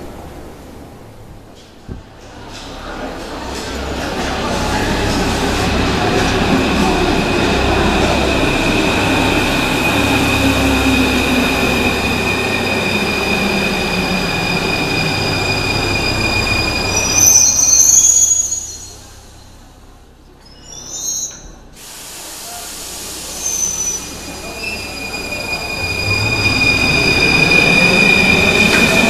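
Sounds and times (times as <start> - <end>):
train rumble: 0.0 - 20.5, 21.6 - 29.0
high squeal of train brakes: 5.9 - 19.6, 20.4 - 29.0
loud hiss of air: 21.7 - 26.5.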